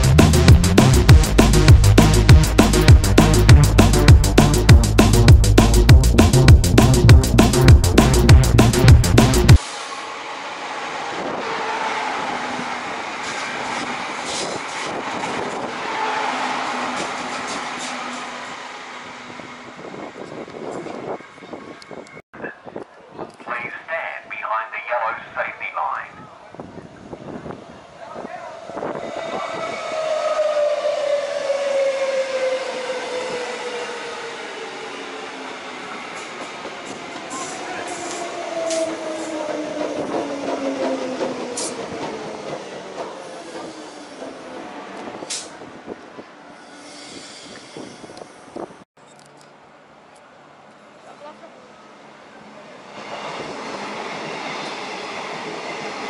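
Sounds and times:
electric train passing: 0:06.0 - 0:22.0, 0:27.2 - 0:48.7, 0:51.5 - 0:56.0
train wheels clicking over rail joints: 0:39.8 - 0:45.6.

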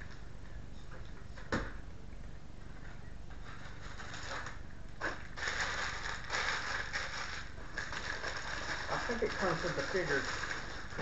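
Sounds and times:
plastic packaging crinkling: 0:03.8 - 0:11.0.

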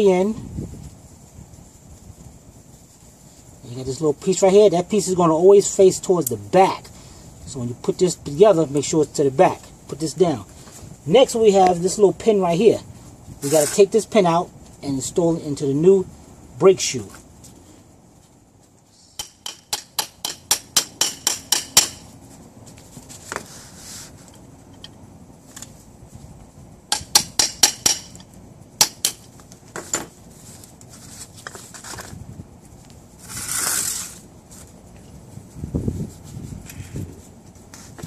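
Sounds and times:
scraping rustle: 0:12.8 - 0:14.8, 0:22.0 - 0:26.5, 0:29.3 - 0:38.0
hand tools tapping metal: 0:19.2 - 0:22.1, 0:26.9 - 0:30.1.

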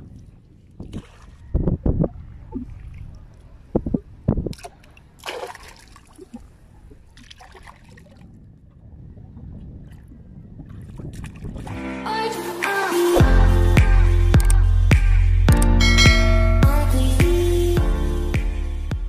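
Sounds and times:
hands splashing in shallow water: 0:04.5 - 0:06.5
music: 0:11.7 - 0:19.0
steady low rumble: 0:13.2 - 0:19.0.

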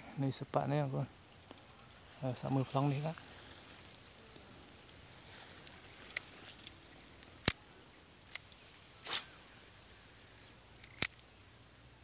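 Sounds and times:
faint high-pitched hiss: 0:00.0 - 0:12.0
sharp clicks: 0:01.3 - 0:02.6, 0:10.8 - 0:11.3.

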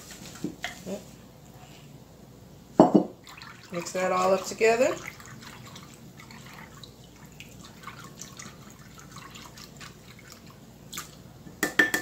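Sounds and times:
liquid sloshing: 0:03.2 - 0:11.2.

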